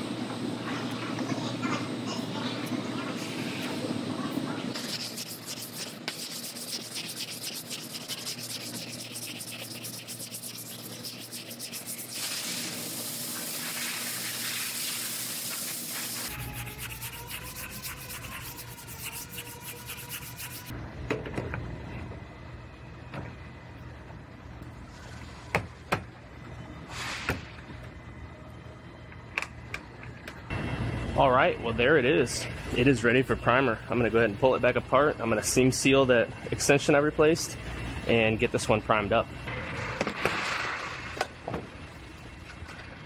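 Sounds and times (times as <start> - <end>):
sandpaper rubbing back and forth: 4.7 - 20.7.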